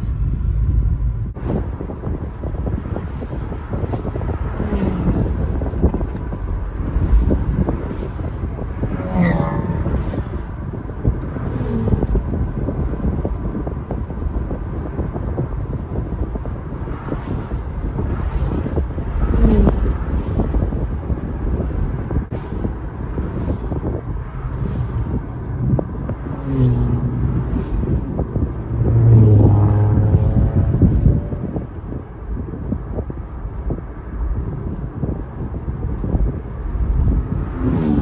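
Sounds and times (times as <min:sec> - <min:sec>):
car engine and road rumble: 0:00.0 - 0:38.0
wind buffeting microphone: 0:00.0 - 0:38.0.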